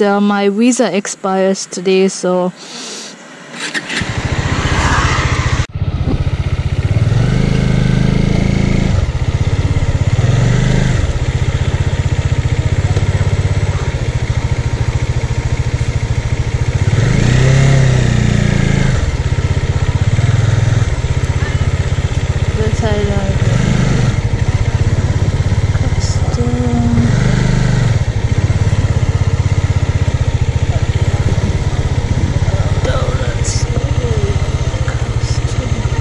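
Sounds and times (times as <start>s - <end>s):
motorcycle engine revving: 3.3s - 36.0s.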